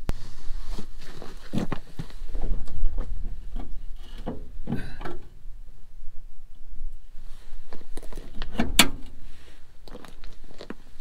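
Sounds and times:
constant low rumble: 0.0s - 11.0s
clicks and clunks of engine parts: 2.4s - 5.3s, 8.1s - 9.2s.

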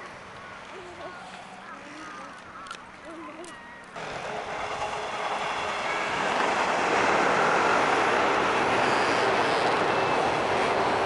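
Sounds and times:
train wheels rumbling on rails: 4.0s - 11.0s.

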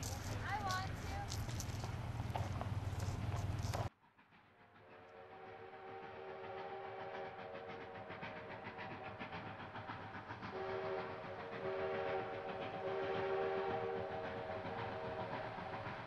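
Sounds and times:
steam locomotive exhaust chuffing: 0.0s - 16.0s
steam locomotive whistle chord: 4.8s - 9.2s, 10.5s - 15.9s.

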